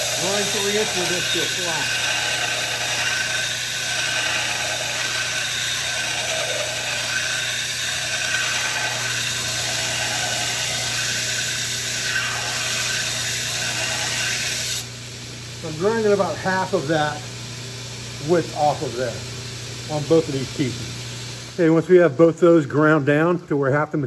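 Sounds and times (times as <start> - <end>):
belt grinder grinding steel: 0.0 - 14.9.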